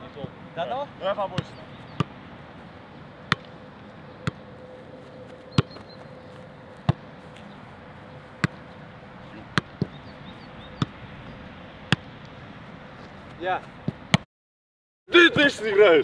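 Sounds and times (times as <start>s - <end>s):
football thuds: 5.5s - 5.9s, 6.8s - 7.1s, 9.5s - 10.0s, 13.0s - 14.2s.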